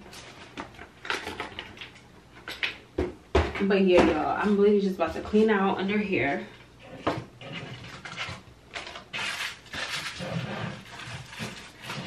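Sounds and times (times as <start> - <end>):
rustling and knocking in cabinet: 2.5 - 5.5, 6.8 - 8.4.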